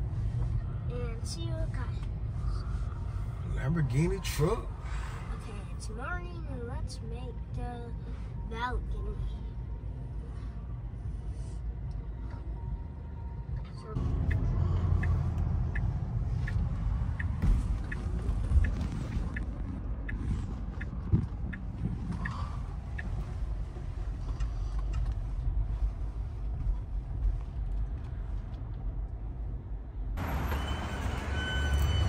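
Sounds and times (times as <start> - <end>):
road rumble inside car: 0.0 - 32.0
light ticking: 14.2 - 23.6.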